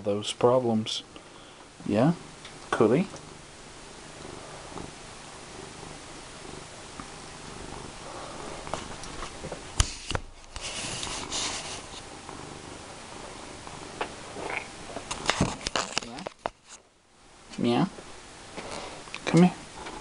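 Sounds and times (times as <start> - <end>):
cat purring: 0.5 - 10.0, 10.6 - 16.3, 19.6 - 20.0
rustling: 7.0 - 12.5.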